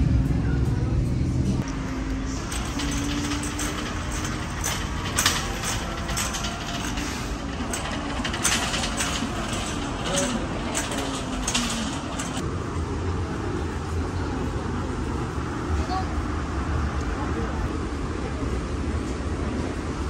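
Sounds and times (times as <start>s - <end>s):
cart wheels rumbling on concrete: 1.6s - 12.4s
faint voices: 1.7s - 18.8s
wire basket rattling clinks: 2.2s - 12.4s.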